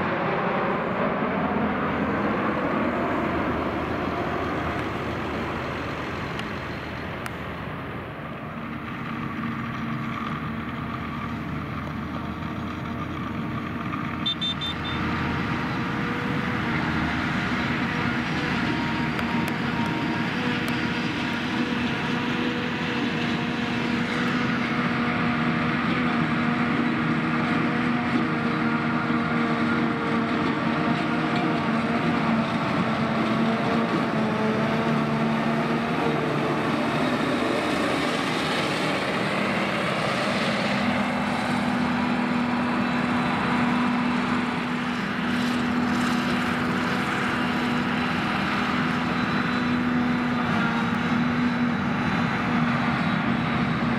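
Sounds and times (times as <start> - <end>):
harvester engine drone: 0.0 - 53.9
tractor engine: 0.0 - 53.9.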